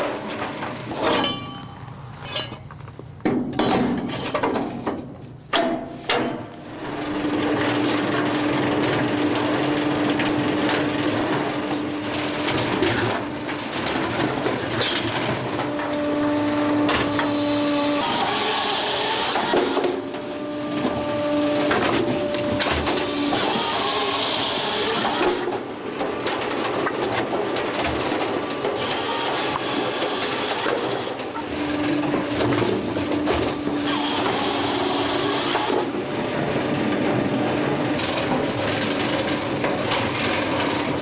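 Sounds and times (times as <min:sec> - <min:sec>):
firewood processor running: 0:06.4 - 0:41.0
hydraulic chainsaw cutting logs: 0:11.6 - 0:38.4.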